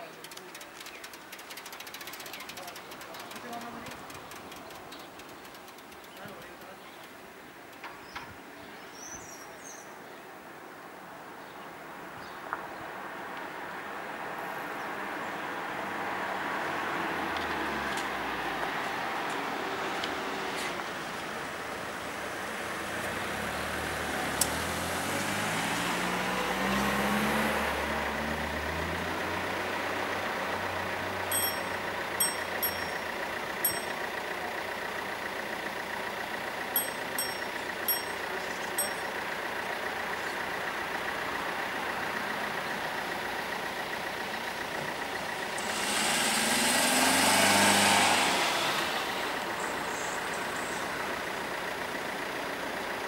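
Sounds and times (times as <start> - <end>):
car pulling away: 13.0 - 53.0
car driving past: 22.6 - 33.0, 45.4 - 50.8
warning bell ringing: 31.3 - 34.3, 36.8 - 39.5.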